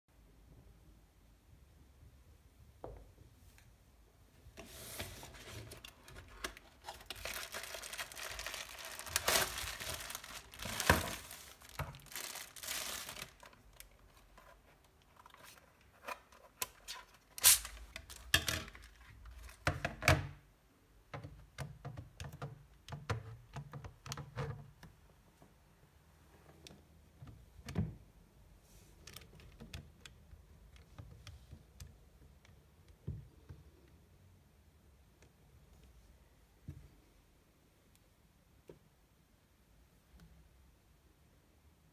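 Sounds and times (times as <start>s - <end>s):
cardboard and plastic rustling: 4.6s - 19.8s.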